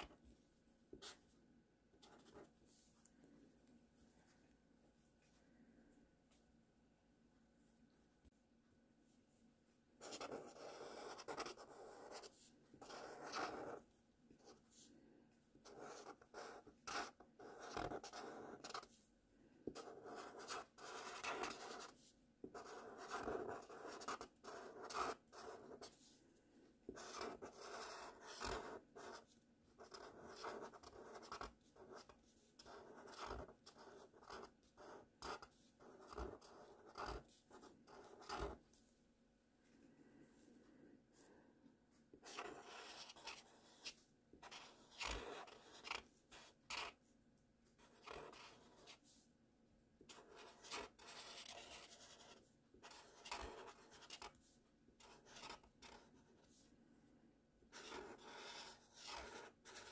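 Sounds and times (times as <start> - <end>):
marker scratching on paper: 2.0 - 2.5, 10.0 - 13.8, 15.6 - 19.0, 19.7 - 26.2, 26.9 - 38.7, 42.2 - 47.0, 47.8 - 49.2, 50.1 - 56.7, 57.7 - 59.9.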